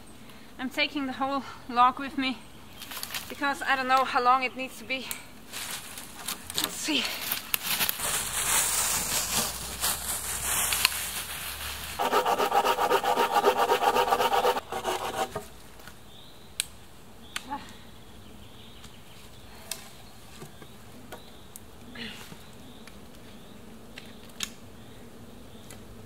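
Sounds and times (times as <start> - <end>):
footsteps crunching through dry leaves: 5.5 - 6.5, 7.1 - 12.5
saw rasping through log: 12.0 - 15.4.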